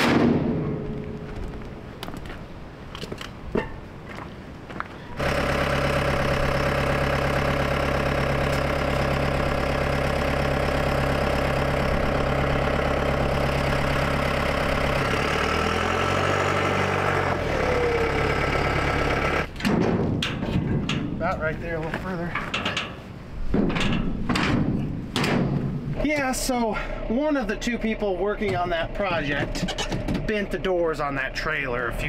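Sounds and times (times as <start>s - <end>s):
diesel engine running: 5.2s - 19.6s, 25.6s - 32.0s.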